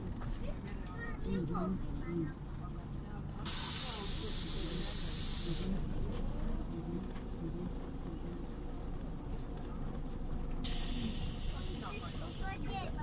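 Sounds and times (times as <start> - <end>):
bus diesel engine and road rumble: 0.0 - 13.0
compressed-air hiss: 3.5 - 5.8, 10.6 - 12.5.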